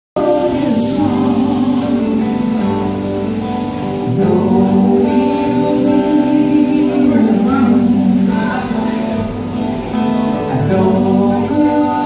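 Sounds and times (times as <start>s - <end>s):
woman singing: 0.2s - 3.0s, 4.1s - 9.2s, 10.5s - 12.0s
acoustic guitars playing: 0.2s - 12.0s.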